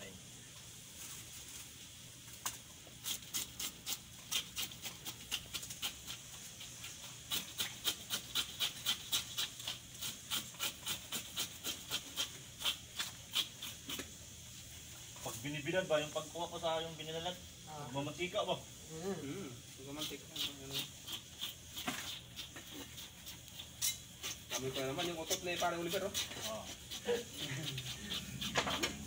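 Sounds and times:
knife scraping fish scales: 3.0 - 14.2, 19.9 - 29.0.

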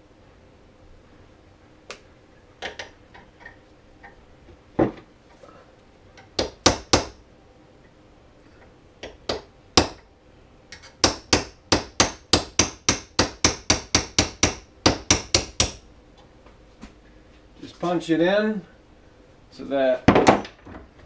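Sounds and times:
hammer tapping steel punch: 10.7 - 15.8.

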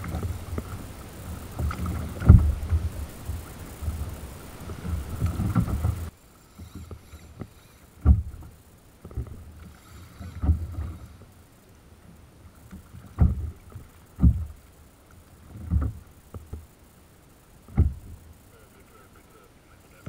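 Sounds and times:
wind rumble on microphone: 0.0 - 6.1
waves thumping kayak hull: 0.0 - 19.0.

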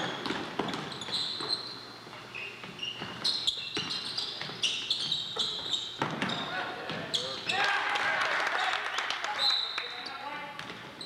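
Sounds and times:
basketball bouncing on gym floor: 0.0 - 1.7, 2.6 - 7.2, 10.6 - 11.0
sneaker squeaks: 0.0 - 7.7, 9.4 - 11.0.

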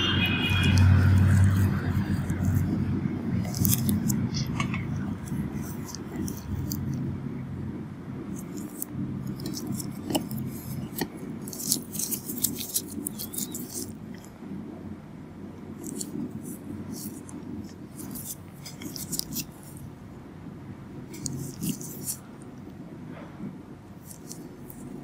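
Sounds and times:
low murmur: 0.0 - 13.1
crisp clicks and scrapes: 0.4 - 2.8, 3.4 - 7.0, 8.3 - 14.3, 15.8 - 19.8, 21.1 - 22.3, 24.0 - 25.0.

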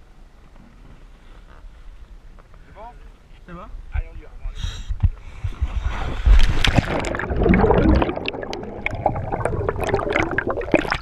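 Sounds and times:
underwater air bubbles rushing: 6.2 - 11.0.

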